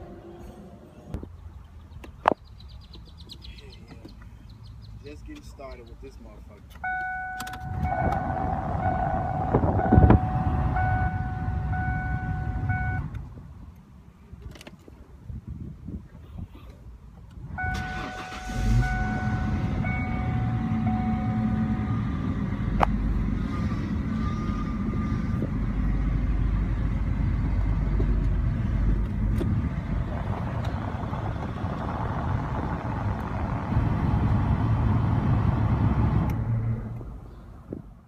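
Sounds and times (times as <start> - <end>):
car engine starting and idling: 4.0 - 13.4, 17.2 - 38.0.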